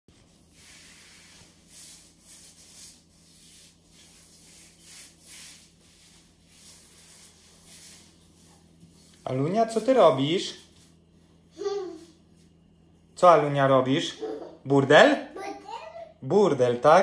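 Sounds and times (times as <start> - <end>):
hands swishing through powder: 0.2 - 11.1.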